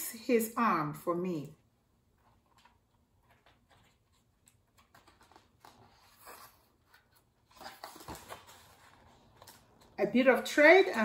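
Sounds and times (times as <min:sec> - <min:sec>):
paper pages rustling: 0:02.2 - 0:10.0.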